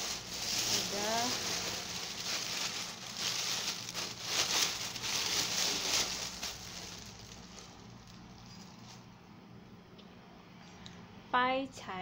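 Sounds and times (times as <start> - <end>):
plastic bag crinkling: 0.0 - 9.1.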